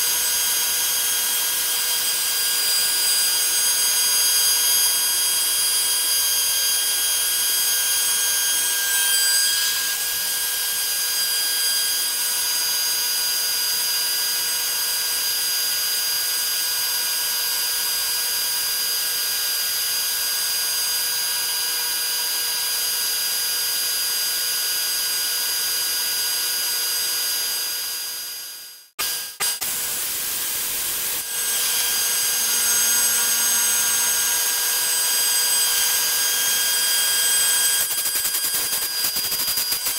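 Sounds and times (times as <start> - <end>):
router milling aluminium: 0.0 - 15.4, 29.0 - 39.9.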